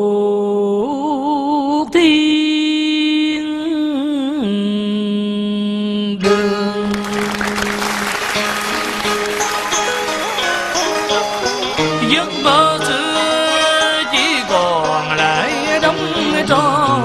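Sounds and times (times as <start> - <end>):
man singing wavering notes: 11.8 - 17.0.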